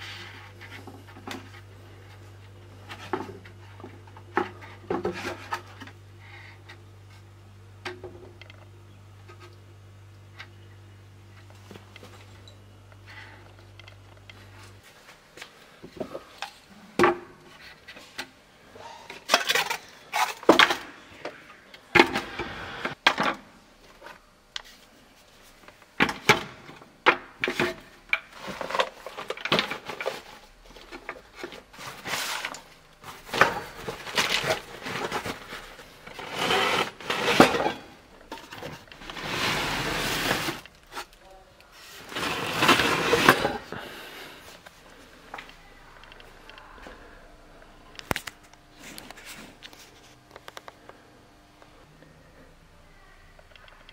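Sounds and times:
scraping or rustling noise: 28.3 - 41.1, 41.7 - 43.8.

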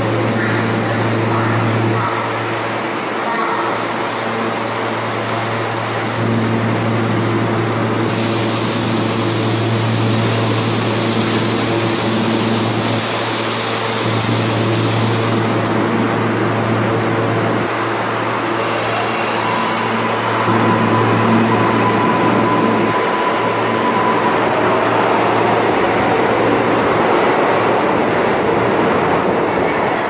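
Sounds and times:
subway train running on rails: 0.0 - 30.0
steady whine: 13.7 - 30.0.

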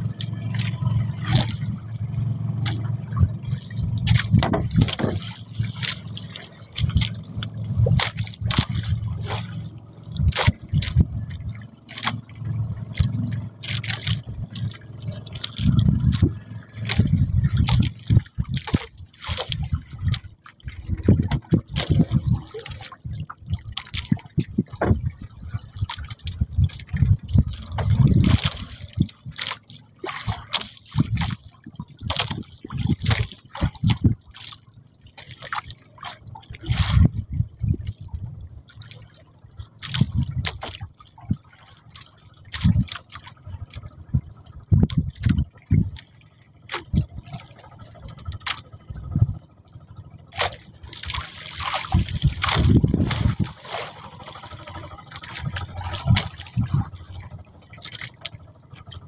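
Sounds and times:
water slapping and trickling: 0.0 - 59.0
knocks and low thumps: 2.6 - 5.3, 24.4 - 25.2, 44.1 - 46.0.

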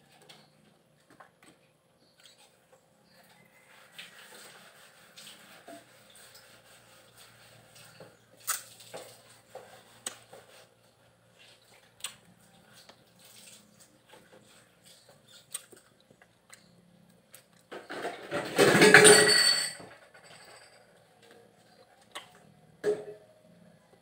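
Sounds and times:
fruit peeling and chewing: 6.6 - 17.7.

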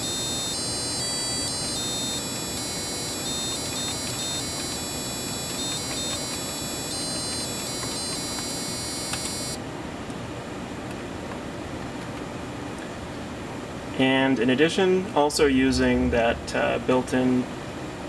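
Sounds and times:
electronic beep tones: 0.0 - 9.6.

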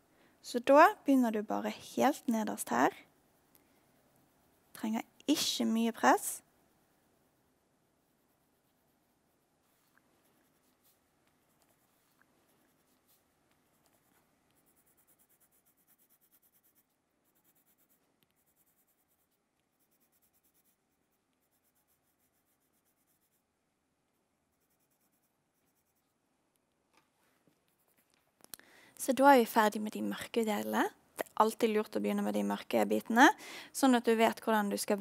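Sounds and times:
pencil scratching on paper: 7.9 - 23.5, 24.4 - 26.2.

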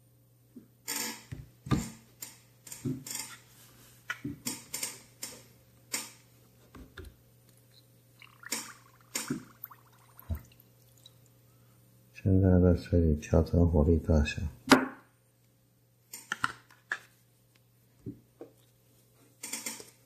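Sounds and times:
water splashing and sloshing: 8.2 - 11.3.

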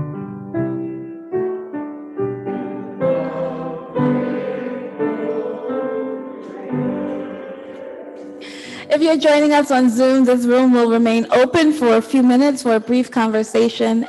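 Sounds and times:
piano playing hymn tune: 0.0 - 12.1
congregation singing: 2.4 - 10.5.

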